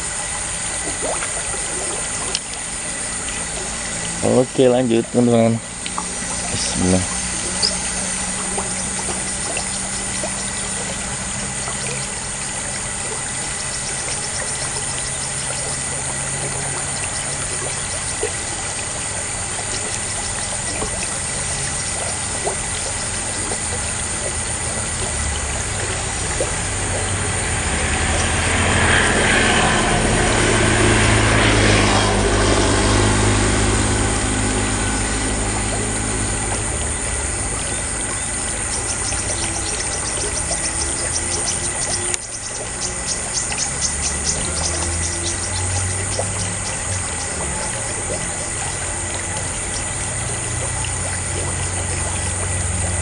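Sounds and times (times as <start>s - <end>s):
low hum: 0.0s - 53.0s
motor vehicle passing: 0.0s - 53.0s.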